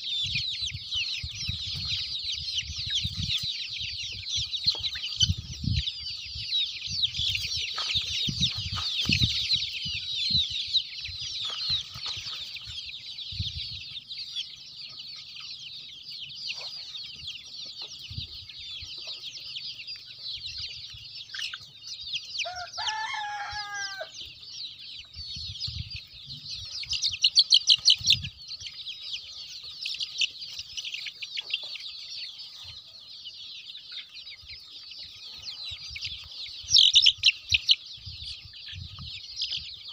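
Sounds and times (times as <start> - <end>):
chicks peeping: 0.0 - 39.9
young cockerel crowing: 22.4 - 24.2.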